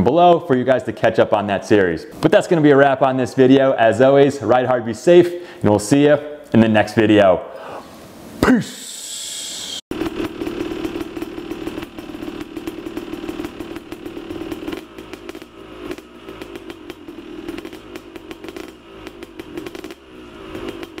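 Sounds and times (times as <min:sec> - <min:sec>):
motorcycle engine running: 0:09.9 - 0:21.0
uneven crackle and clatter: 0:09.9 - 0:21.0.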